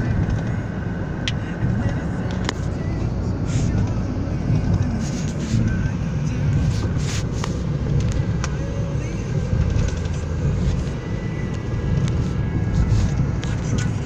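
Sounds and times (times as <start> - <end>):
car cabin road rumble: 0.0 - 14.0.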